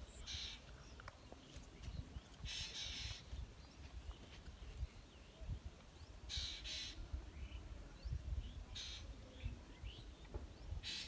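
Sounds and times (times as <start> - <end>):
bird calling: 0.0 - 1.1, 2.3 - 4.3, 6.2 - 7.6, 8.6 - 11.0.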